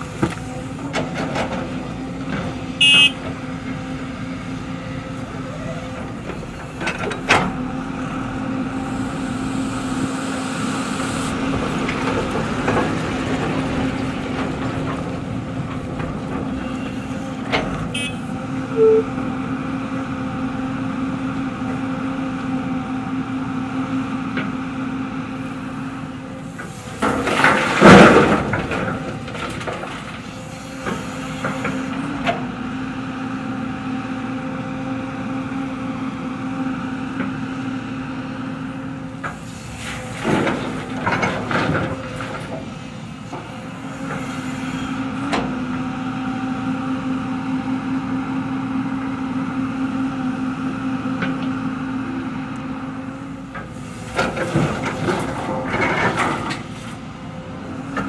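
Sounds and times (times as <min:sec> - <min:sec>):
excavator engine and hydraulics: 0:00.0 - 0:58.0
bucket scraping and crashing rocks: 0:27.0 - 0:30.1.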